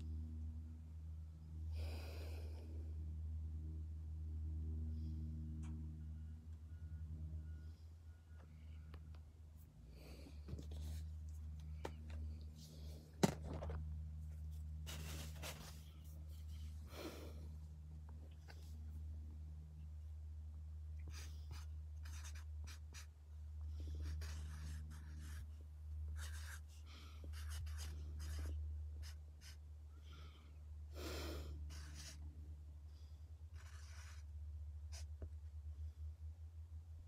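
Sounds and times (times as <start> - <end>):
low steady hum: 0.0 - 37.0
paper rustling and scratching: 14.5 - 16.5.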